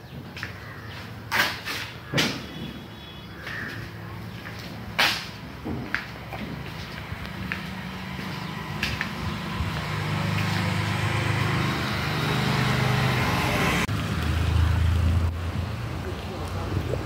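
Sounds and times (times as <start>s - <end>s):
vehicle engine running: 6.4s - 17.0s.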